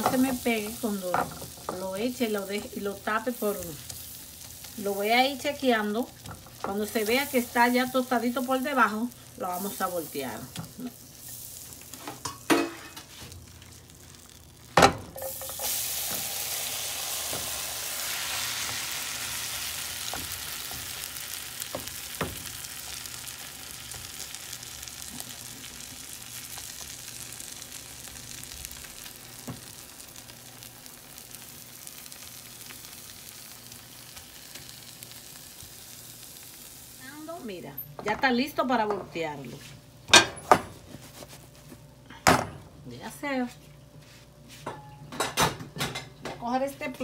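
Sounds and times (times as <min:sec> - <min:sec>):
food sizzling in a pan: 0:00.0 - 0:40.0
knocks in a pan: 0:14.8 - 0:15.2.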